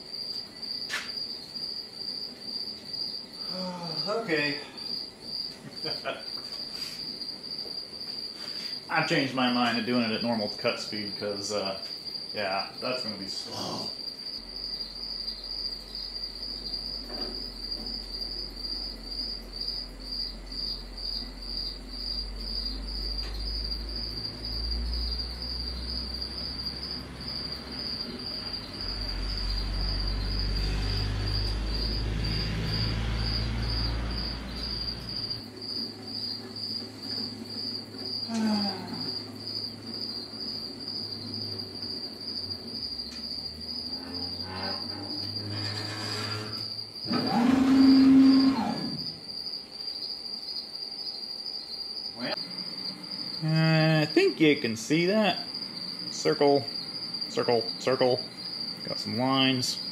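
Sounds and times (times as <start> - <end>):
machine gantry drives humming: 16.2 - 49.3
scribe scratching on steel: 44.6 - 46.8.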